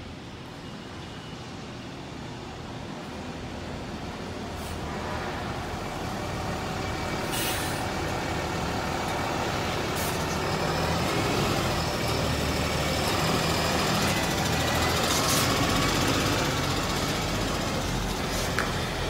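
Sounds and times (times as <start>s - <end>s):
air brake hiss: 4.6s - 4.9s, 7.3s - 7.9s
truck diesel engine running: 5.7s - 19.0s.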